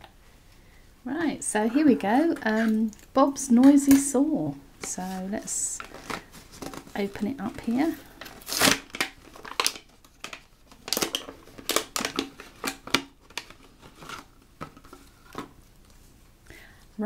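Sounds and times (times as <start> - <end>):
plastic packaging crinkling: 4.8 - 16.0
scissors cutting plastic: 6.6 - 14.2.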